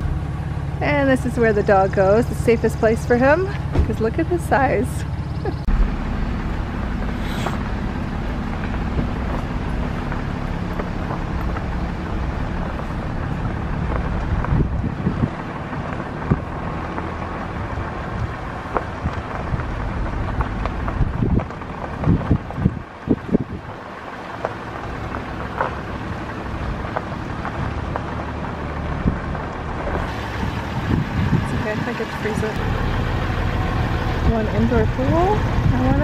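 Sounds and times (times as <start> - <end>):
vehicle engine and road rumble: 0.0 - 36.0
wind on microphone: 11.4 - 23.8, 28.9 - 32.6, 33.6 - 36.0.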